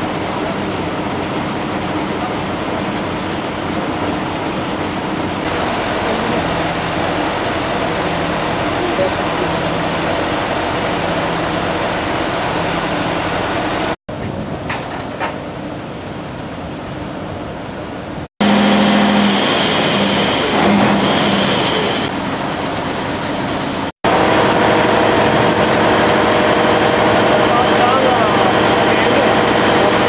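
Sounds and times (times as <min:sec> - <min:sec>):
heavy engine rumbling: 0:00.0 - 0:22.9, 0:23.6 - 0:30.0
steady hum: 0:15.4 - 0:30.0.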